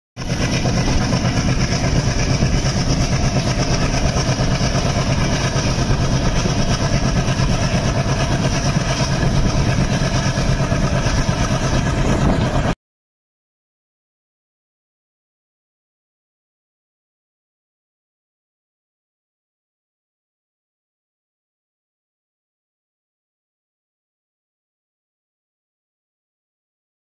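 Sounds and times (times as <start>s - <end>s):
diesel locomotive engine pulsing: 0.2s - 12.8s.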